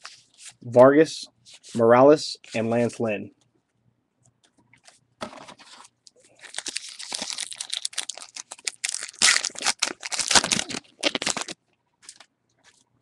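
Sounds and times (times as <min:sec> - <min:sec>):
card pack wrapper tearing: 0:06.4 - 0:12.2.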